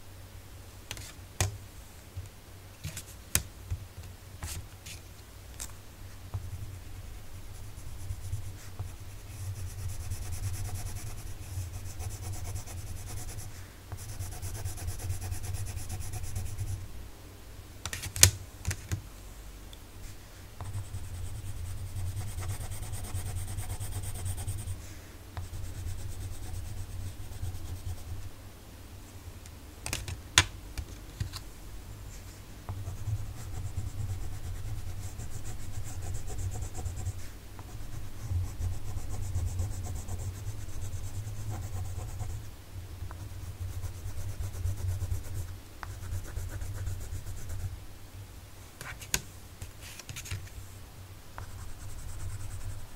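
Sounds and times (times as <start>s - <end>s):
pencil scribbling on paper: 7.6s - 16.8s, 20.6s - 24.8s, 32.8s - 42.4s, 43.2s - 47.7s.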